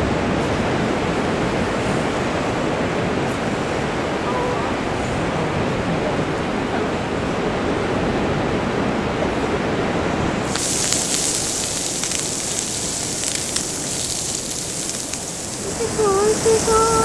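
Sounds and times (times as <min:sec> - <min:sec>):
wind: 0:00.0 - 0:17.0
meat sizzling on a griddle: 0:10.4 - 0:17.0.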